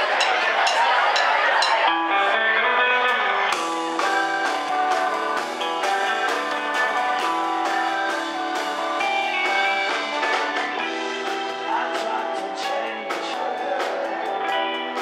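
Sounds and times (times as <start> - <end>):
rock band playing live: 0.0 - 15.0.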